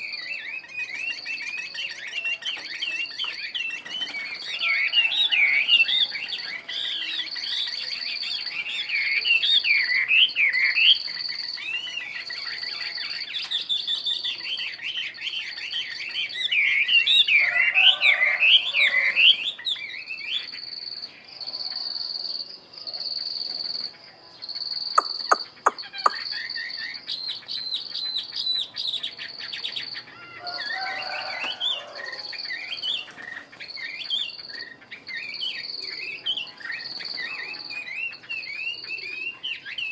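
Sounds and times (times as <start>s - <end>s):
bird singing whistled phrases: 0.0s - 20.5s, 24.8s - 33.2s, 33.8s - 39.9s
sharp clicks: 25.0s - 26.2s.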